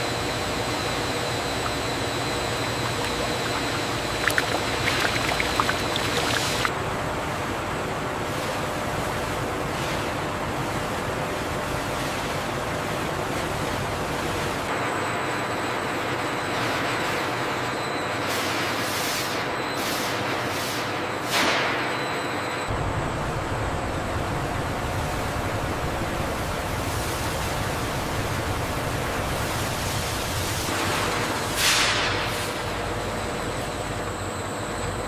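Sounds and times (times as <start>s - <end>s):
liquid pouring into metal tank: 1.4s - 6.7s.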